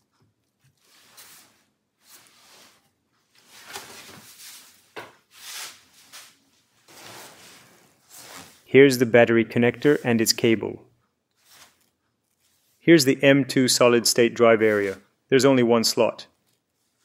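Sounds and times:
soft handling rustles and scrapes: 0.1s - 8.8s, 9.6s - 10.7s, 11.3s - 13.0s, 14.2s - 15.1s, 16.4s - 17.0s.

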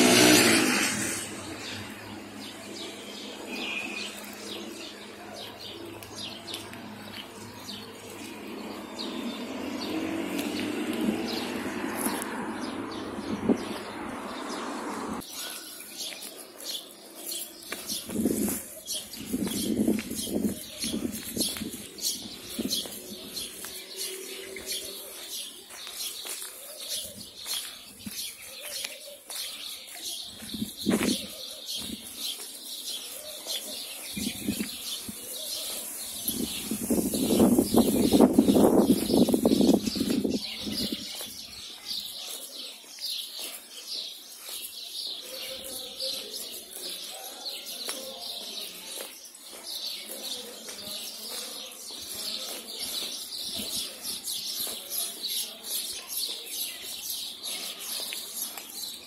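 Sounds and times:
car passing: 0.0s - 3.8s, 6.8s - 15.2s
small birds chirping: 0.0s - 59.0s.

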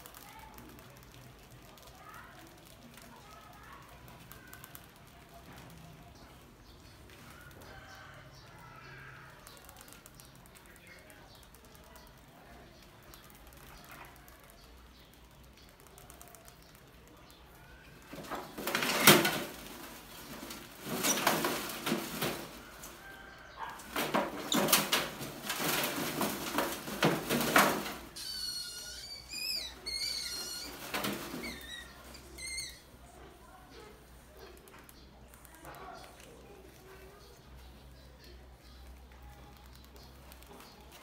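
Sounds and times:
rats scrabbling in a metal trap: 0.0s - 32.8s
rat squeaks: 23.4s - 33.2s.

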